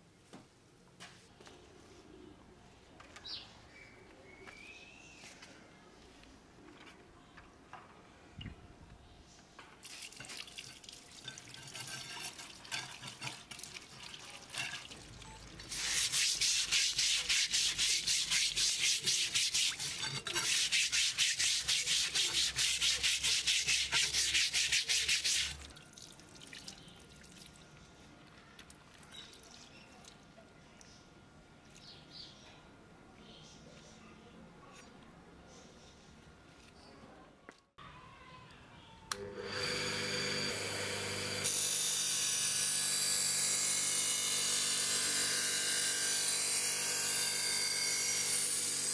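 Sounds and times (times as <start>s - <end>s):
brush scrubbing metal blade: 15.7s - 25.7s.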